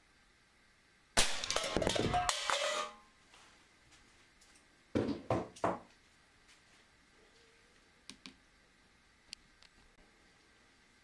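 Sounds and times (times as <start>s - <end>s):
air pistol firing crack: 1.2s - 2.8s.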